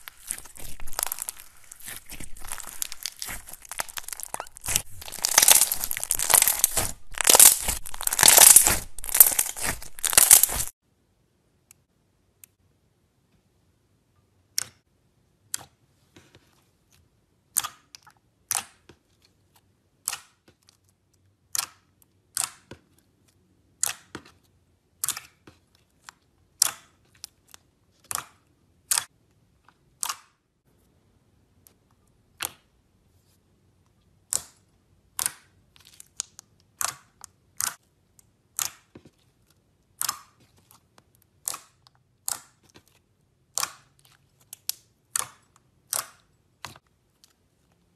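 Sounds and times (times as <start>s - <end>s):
slime air pockets popping: 0.0s - 10.7s.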